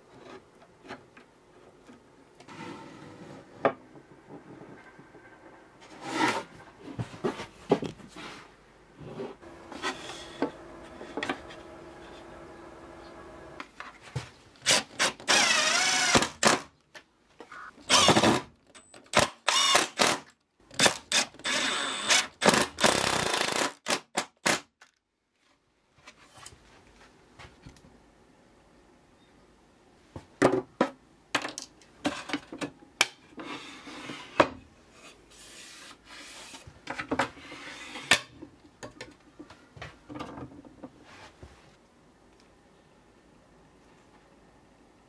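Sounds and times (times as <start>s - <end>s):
power drill whining: 14.7s - 16.5s, 17.9s - 18.3s, 19.5s - 20.1s, 21.4s - 23.6s.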